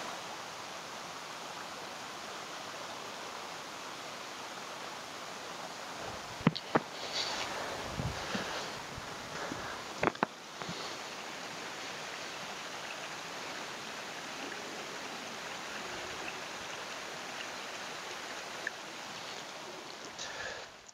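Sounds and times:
small creek flowing: 0:00.0 - 0:20.9.

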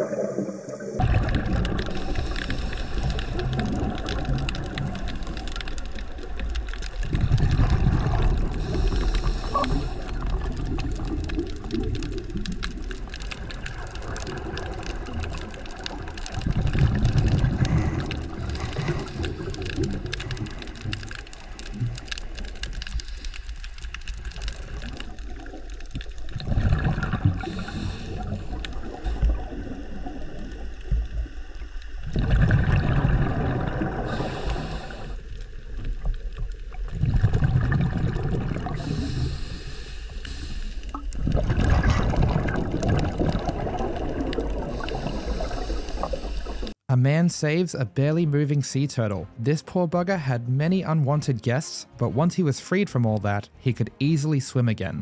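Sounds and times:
underwater gurgling rumble: 0:00.0 - 0:46.8.

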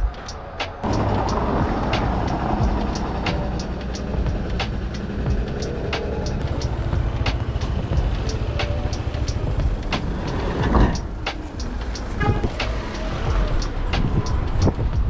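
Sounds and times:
low rumble of car traffic: 0:00.0 - 0:15.0.

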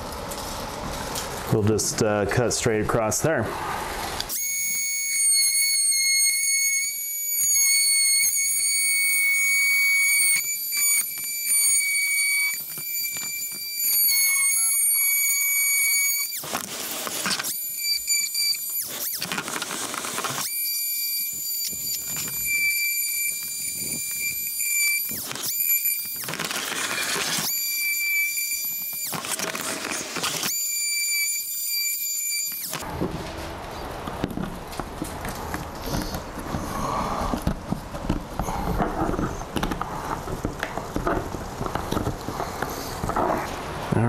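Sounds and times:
blade rasping through plastic: 0:04.2 - 0:32.9, 0:34.0 - 0:44.0
oscillating multi-tool whining: 0:04.2 - 0:32.9.

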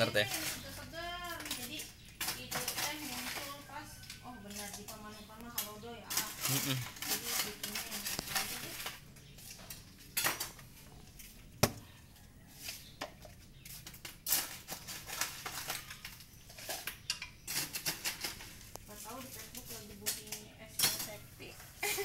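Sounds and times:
metal scoop scooping ice: 0:00.0 - 0:05.0, 0:05.6 - 0:10.6, 0:13.8 - 0:21.2.

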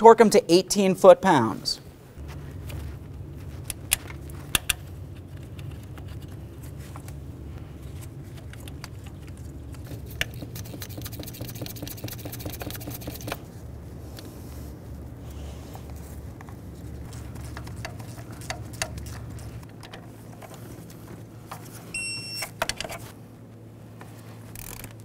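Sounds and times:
low hum: 0:01.8 - 0:25.0.

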